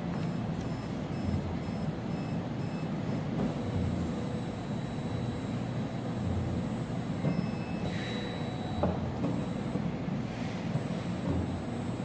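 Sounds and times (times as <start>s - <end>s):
low mechanical hum: 0.0s - 12.0s
faint high electronic whine: 3.6s - 9.8s, 10.8s - 12.0s.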